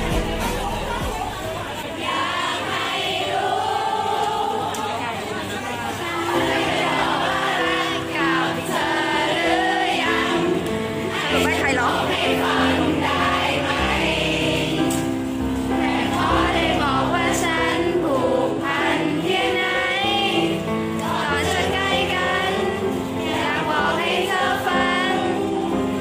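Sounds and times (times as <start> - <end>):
pop love song: 0.0 - 1.5
many voices singing: 0.0 - 26.0.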